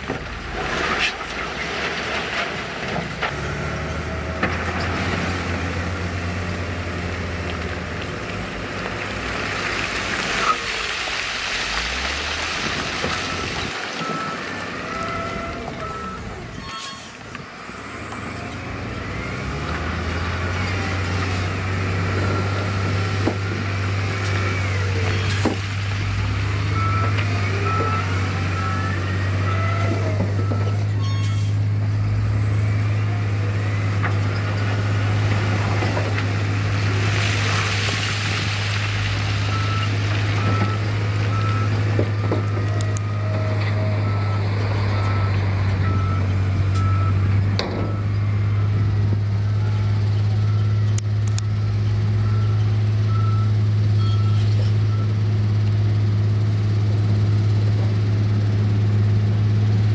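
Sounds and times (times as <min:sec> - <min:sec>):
diesel engine droning: 0:00.0 - 0:59.9.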